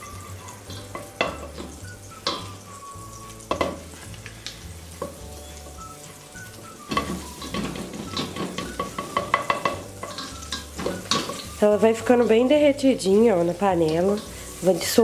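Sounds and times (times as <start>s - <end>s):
soft frying sizzle: 0.0s - 15.0s
spoon knocking against pot: 3.5s - 3.8s, 6.9s - 11.5s.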